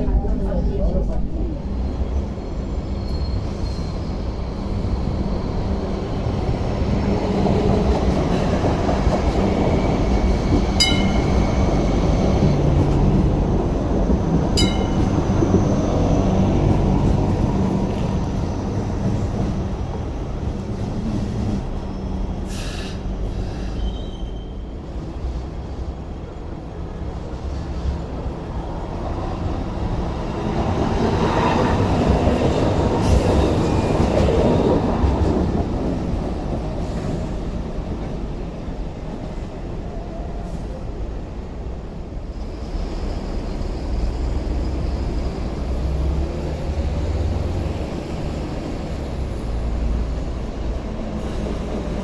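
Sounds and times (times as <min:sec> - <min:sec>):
train wheels rumbling on rail: 0:00.0 - 0:52.0.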